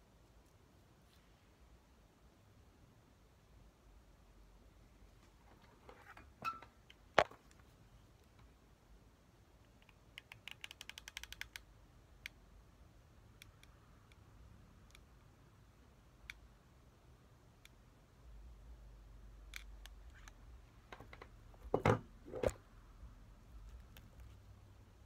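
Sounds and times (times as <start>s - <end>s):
knock on workbench: 21.7s - 22.1s.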